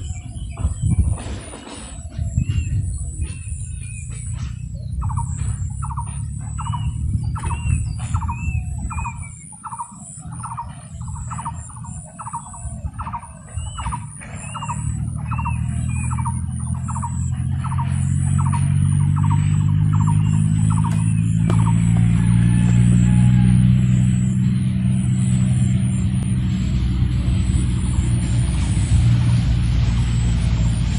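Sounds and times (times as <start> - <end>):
bird squeaky call: 0.0 - 22.0
steady low rumble: 0.0 - 30.9.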